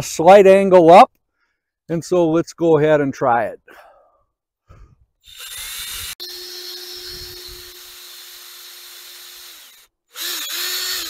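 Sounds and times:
cordless drill boring into wood: 5.2s - 11.0s.

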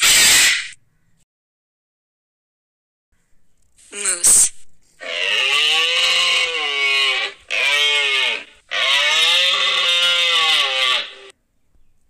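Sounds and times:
deer calling: 5.0s - 11.3s.

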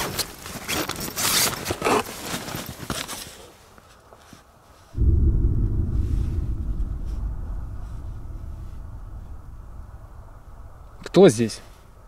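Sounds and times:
loud steady low rumble: 5.0s - 12.0s.

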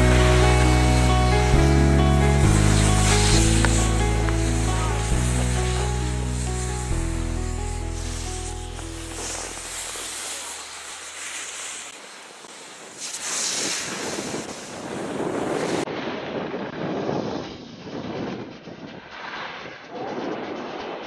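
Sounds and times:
wind on microphone: 12.7s - 21.0s.

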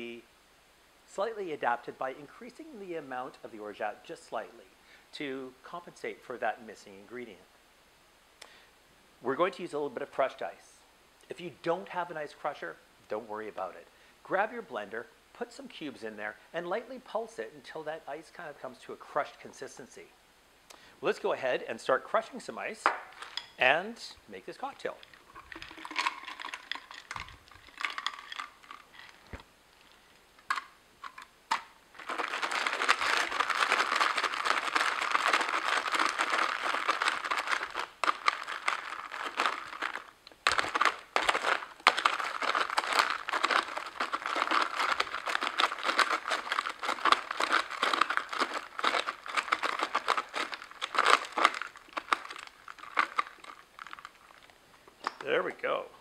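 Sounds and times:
ice crushing and crackling: 22.9s - 23.6s, 24.8s - 54.5s
ice clicks: 24.8s - 29.4s, 30.5s - 54.5s.

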